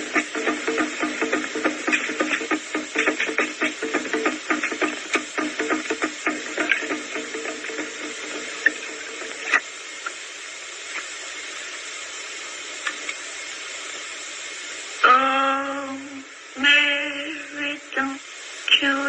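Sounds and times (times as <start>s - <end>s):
guitar notes: 0.0s - 9.6s
film soundtrack hiss: 0.0s - 19.0s.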